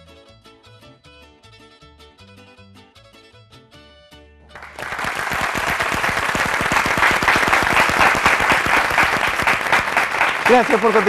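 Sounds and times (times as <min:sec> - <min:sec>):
audience applause: 0:04.5 - 0:11.0.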